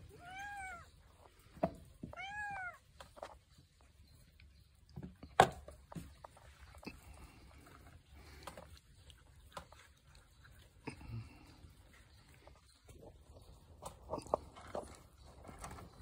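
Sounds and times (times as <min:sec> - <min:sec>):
cat crunching dry kibble: 0:05.7 - 0:16.0.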